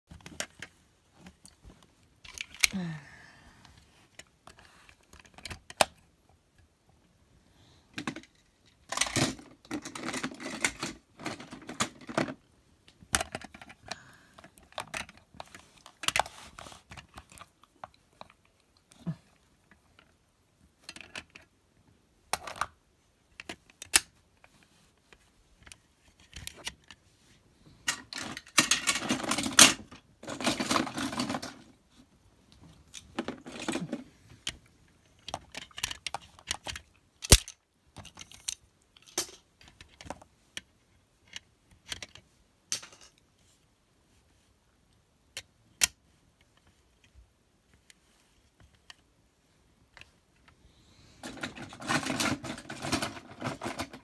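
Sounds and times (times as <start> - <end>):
plastic toys clicking and knocking: 2.2 - 2.8, 4.1 - 6.0, 7.9 - 18.5, 20.8 - 21.5, 22.3 - 24.5, 27.8 - 31.7, 32.8 - 43.2, 51.2 - 54.0
toys rustling and scraping: 13.2 - 18.5, 49.9 - 54.0.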